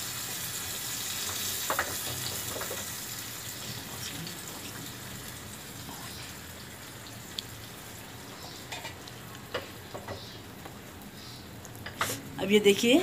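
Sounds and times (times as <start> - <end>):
paste sizzling in hot oil: 0.0 - 9.2.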